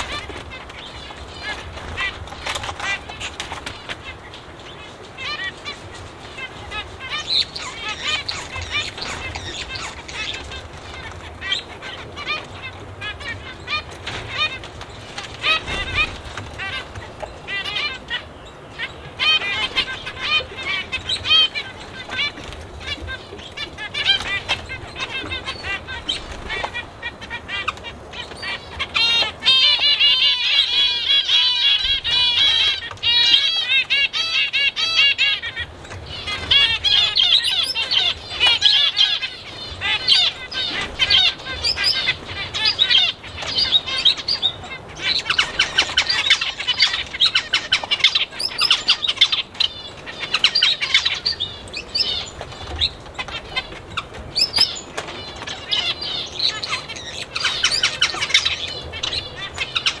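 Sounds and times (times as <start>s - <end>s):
small birds chirping: 0.0s - 60.0s.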